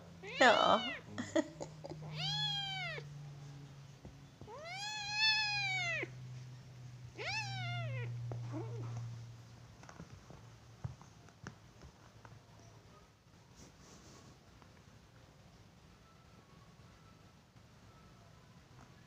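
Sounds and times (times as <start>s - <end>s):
low steady hum: 0.0s - 13.5s
kitten meowing: 0.2s - 1.1s, 2.1s - 3.1s, 4.5s - 6.1s, 7.2s - 8.8s.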